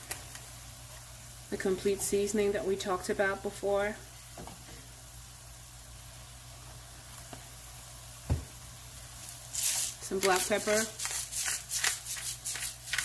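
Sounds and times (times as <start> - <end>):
meat sizzling in a skillet: 4.1 - 13.0
dull thump: 8.3 - 8.5.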